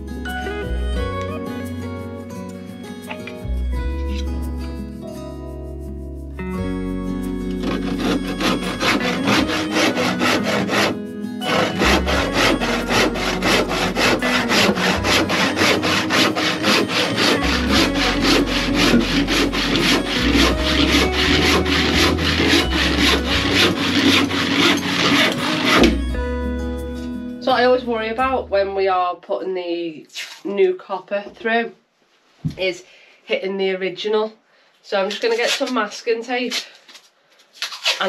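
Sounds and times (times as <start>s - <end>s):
hand saw cutting wood: 7.5s - 26.1s.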